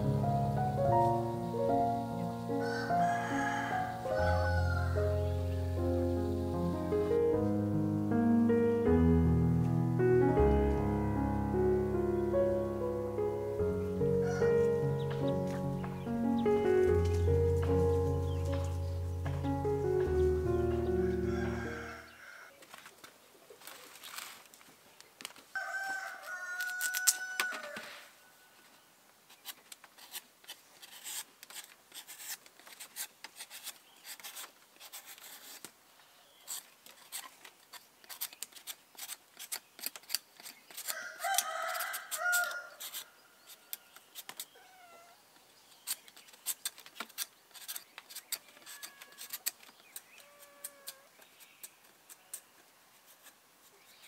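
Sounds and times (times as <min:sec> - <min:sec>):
rooster crowing: 0:02.6 - 0:05.2, 0:14.2 - 0:14.7, 0:20.9 - 0:22.5, 0:25.5 - 0:28.6, 0:40.9 - 0:43.2.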